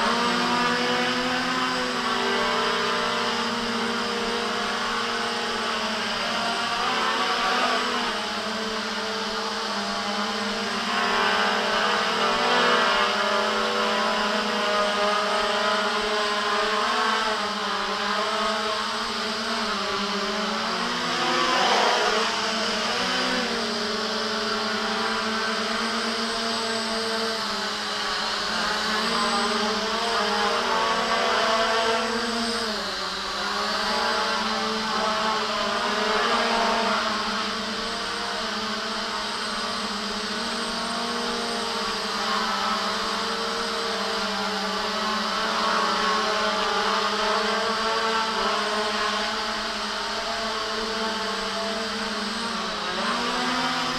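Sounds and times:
quadcopter motors whining: 0.0s - 53.9s.

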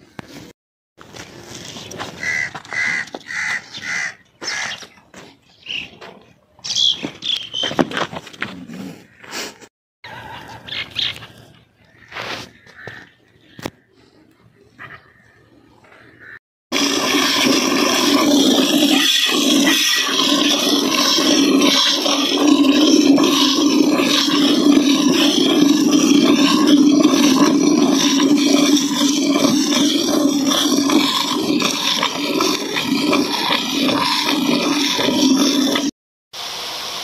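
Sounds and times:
milk squirting into metal pot: 16.8s - 35.9s.

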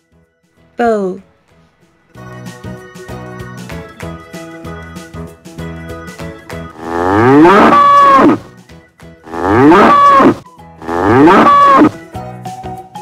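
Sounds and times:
bull mooing: 6.8s - 8.5s, 9.3s - 12.0s.

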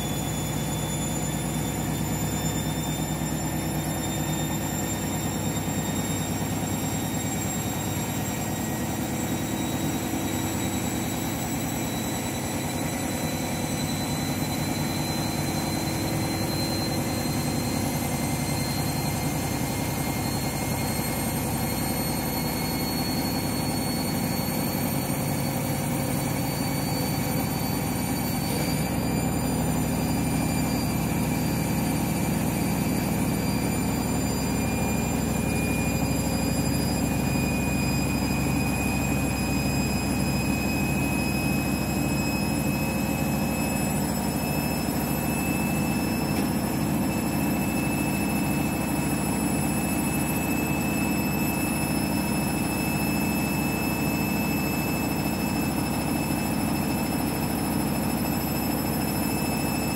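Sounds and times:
washing machine spinning: 0.0s - 59.9s.

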